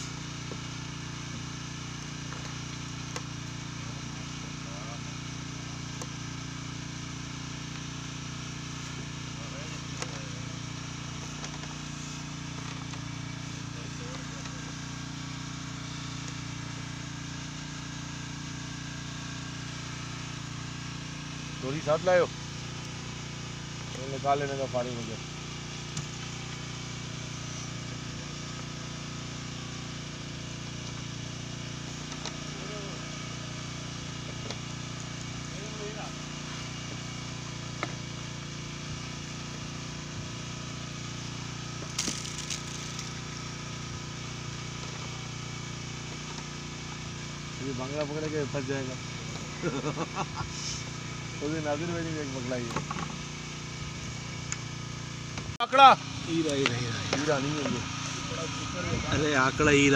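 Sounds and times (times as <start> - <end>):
boat engine droning: 0.0 - 59.9.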